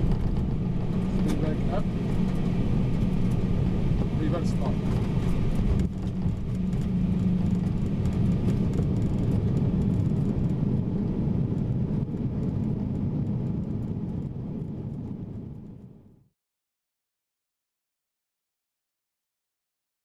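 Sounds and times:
aircraft low rumble: 0.0 - 16.3.

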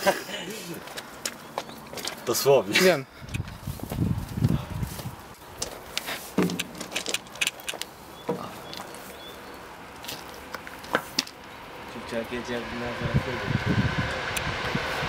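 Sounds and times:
footsteps on gravel: 0.6 - 2.6, 3.2 - 11.6
sharp clicks and knocks: 5.6 - 8.9.

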